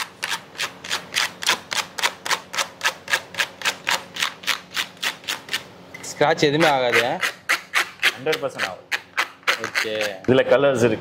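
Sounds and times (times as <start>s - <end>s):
hard object scraping laminate: 6.4s - 10.5s.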